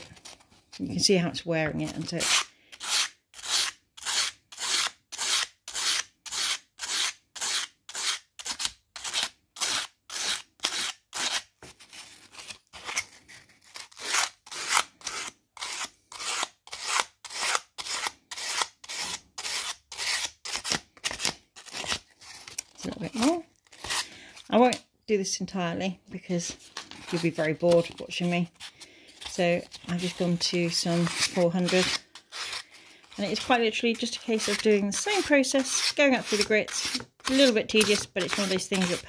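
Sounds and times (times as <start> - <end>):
abrasive paper rasping on steel teeth: 27.2 - 39.0.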